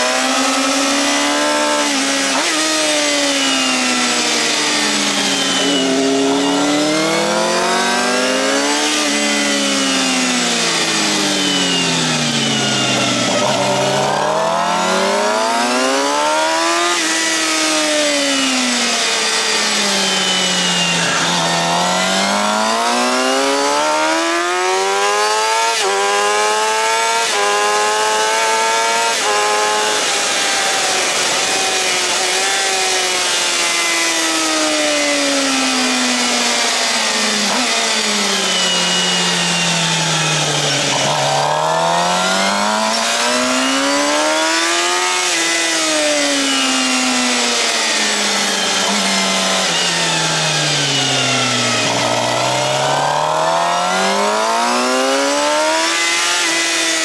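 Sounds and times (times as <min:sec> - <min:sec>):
motorcycle engine revving: 0:00.0 - 0:57.0
gear upshifts: 0:47.0 - 0:56.0.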